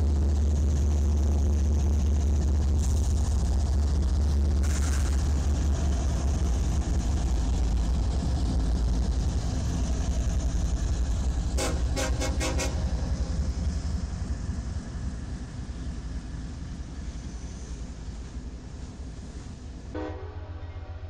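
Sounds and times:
diesel locomotive engine rumble: 0.0 - 21.0
train horn short toots: 11.6 - 12.9, 19.9 - 21.0.

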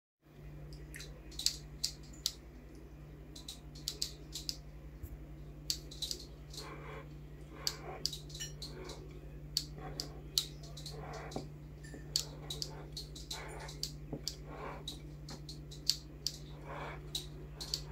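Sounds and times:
low electrical hum: 0.2 - 17.9
small sharp clicks and taps: 3.4 - 4.6, 12.1 - 16.4.

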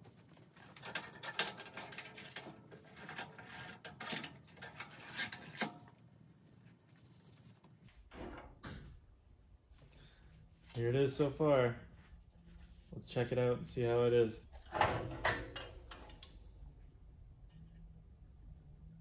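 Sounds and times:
metal clamps clicking and rattling: 0.3 - 6.0.

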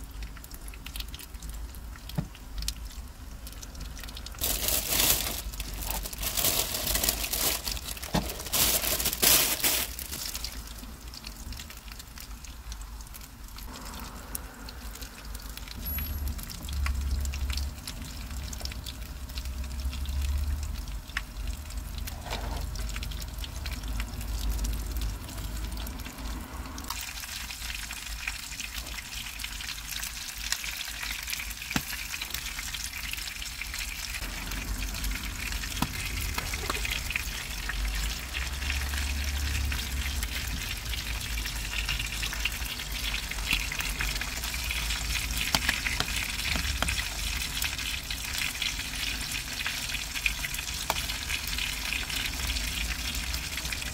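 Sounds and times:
chicken sizzling in oil: 0.0 - 53.9
plastic rustling: 4.4 - 10.9, 35.8 - 37.3.

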